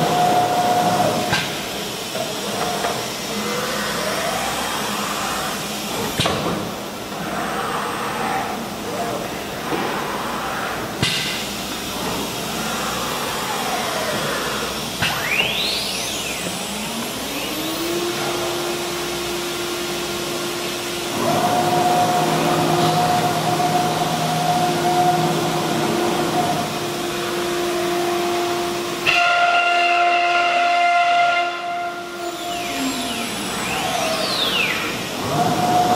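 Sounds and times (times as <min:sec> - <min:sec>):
motor whine: 0:11.7 - 0:29.1, 0:32.0 - 0:35.9.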